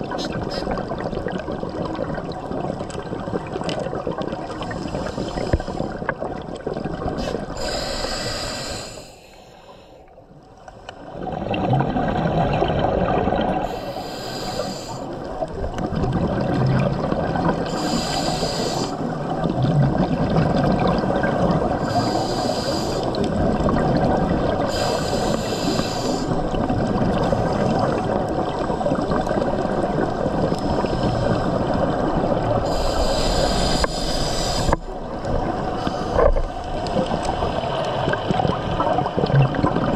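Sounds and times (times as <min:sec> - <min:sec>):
exhaled air bubbling: 0:00.0 - 0:09.1, 0:11.0 - 0:39.9
underwater hiss: 0:04.4 - 0:06.1, 0:07.2 - 0:10.1, 0:13.4 - 0:15.2, 0:17.6 - 0:19.2, 0:21.7 - 0:23.3, 0:24.5 - 0:26.6, 0:30.1 - 0:37.7.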